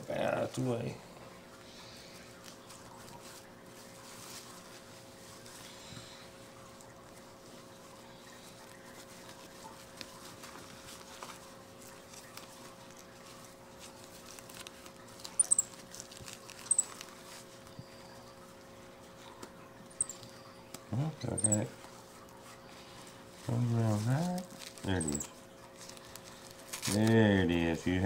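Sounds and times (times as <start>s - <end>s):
low steady hum: 0.0s - 28.0s
monkey high-pitched squeaks: 15.4s - 15.8s, 16.6s - 17.0s, 20.0s - 20.2s, 21.2s - 21.7s, 25.0s - 25.3s.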